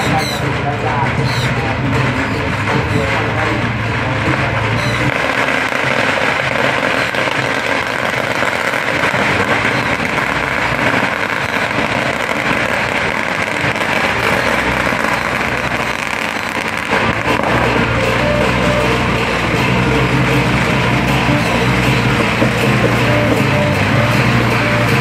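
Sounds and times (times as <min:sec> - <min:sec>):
boat motors running: 0:00.0 - 0:25.0.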